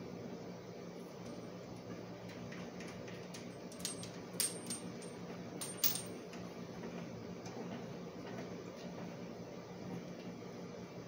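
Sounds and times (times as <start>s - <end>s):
metal pipe fittings clinking: 3.7s - 6.2s.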